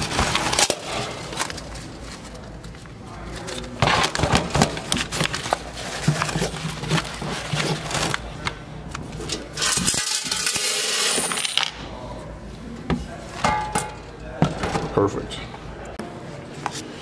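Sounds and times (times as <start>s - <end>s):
coins clinking and jingling: 9.6s - 11.7s.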